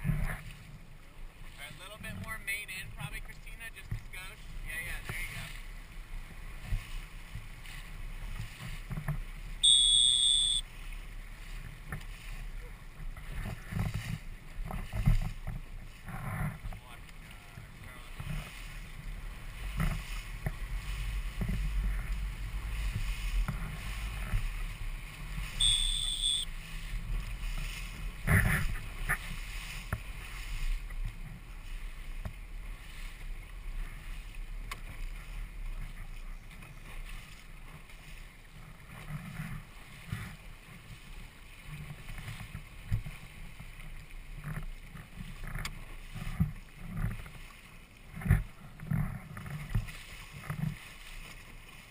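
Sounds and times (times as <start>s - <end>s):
water splashing against hull: 0.0s - 51.9s
short high beep: 9.6s - 10.6s, 25.6s - 26.5s
wind buffeting microphone: 11.4s - 25.7s.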